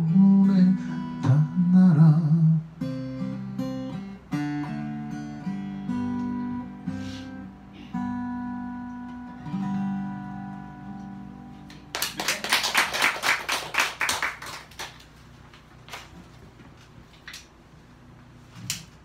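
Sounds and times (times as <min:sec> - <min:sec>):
acoustic guitar chords ringing: 0:00.0 - 0:11.9
audience applauding: 0:11.9 - 0:15.1.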